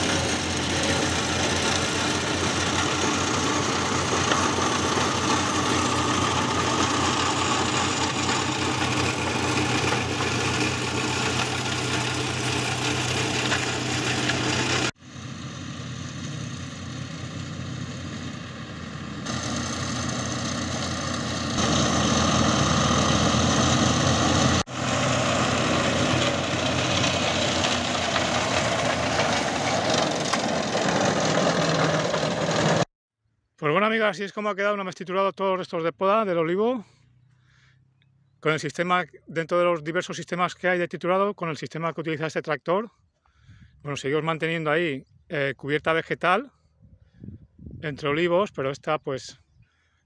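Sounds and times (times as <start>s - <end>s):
flail shredder chewing prunings: 0.0s - 14.9s, 19.3s - 32.8s
tractor engine under load: 0.0s - 32.9s.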